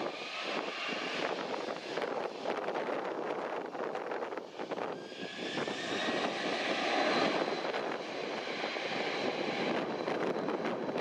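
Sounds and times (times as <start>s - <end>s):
jet engines spooling up: 0.0s - 11.0s
rising engine whine: 4.4s - 11.0s.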